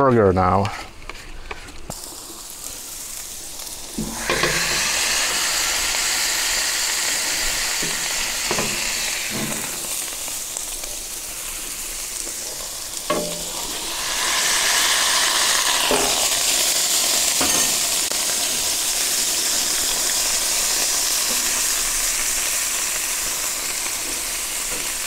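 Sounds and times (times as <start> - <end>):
meat sizzling on griddle: 1.0 - 25.0
press knocking on griddle: 7.8 - 9.8.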